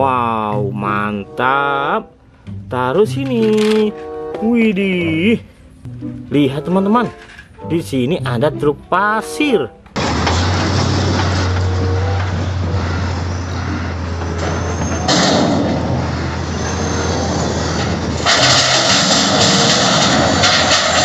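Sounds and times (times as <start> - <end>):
heavy diesel engines humming: 9.8 - 21.0.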